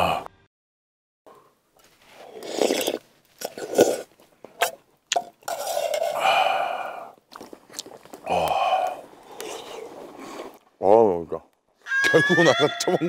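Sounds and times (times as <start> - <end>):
man slurping stew: 1.8 - 10.6.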